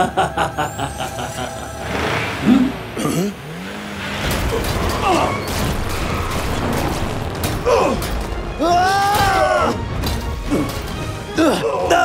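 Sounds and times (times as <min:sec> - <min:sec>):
music: 0:00.0 - 0:03.4, 0:04.2 - 0:12.0
car engine running: 0:01.1 - 0:08.6.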